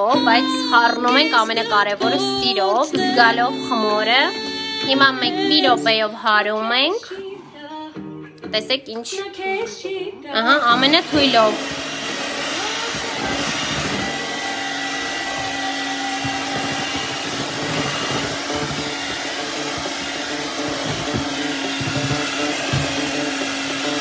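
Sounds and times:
electric mixer whipping batter: 10.6 - 24.0.

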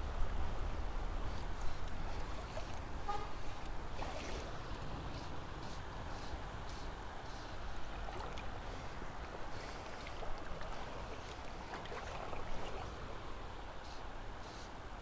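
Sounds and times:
light water splashes: 0.0 - 15.0
river water flowing: 0.0 - 15.0.

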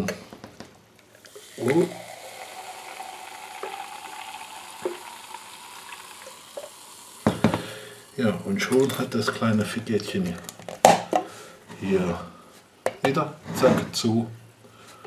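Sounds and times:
carbonation fizzing: 1.2 - 9.4
cola pouring into glass: 1.2 - 9.5.

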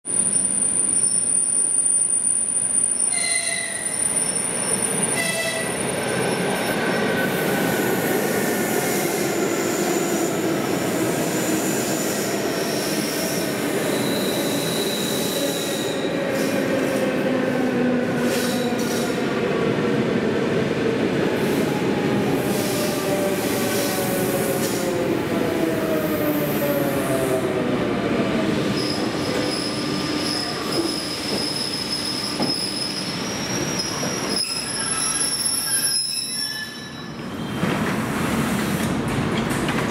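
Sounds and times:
train horn tones: 5.2 - 5.7.

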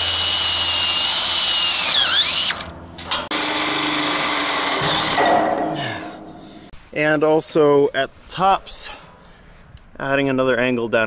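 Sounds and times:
cordless drill driving screws: 0.0 - 2.7, 3.3 - 5.3.

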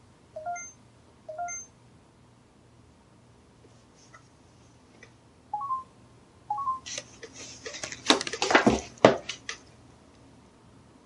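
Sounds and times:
rising two-note beeps: 5.6 - 5.9.

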